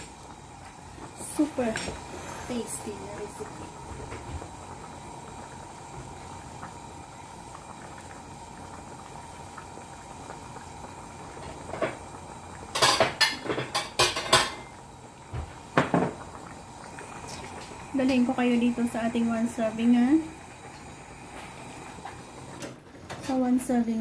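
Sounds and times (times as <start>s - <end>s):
soup boiling and bubbling: 0.0s - 24.0s
kitchenware clattering: 12.8s - 14.7s.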